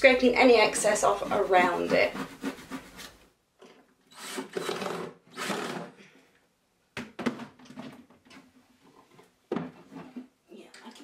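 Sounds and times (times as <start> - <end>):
wood filler scraping: 0.4 - 3.2.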